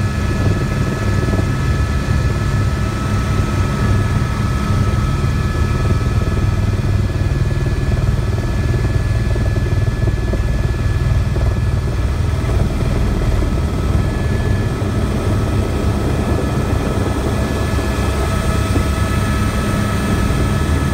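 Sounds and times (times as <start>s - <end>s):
helicopter rotor drone: 0.0s - 20.9s
turbine whine: 0.0s - 20.9s.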